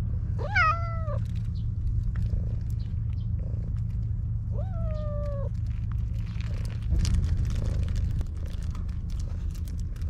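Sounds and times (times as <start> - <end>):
low steady rumble: 0.0 - 10.0
cat meowing: 0.4 - 1.2, 4.5 - 5.6.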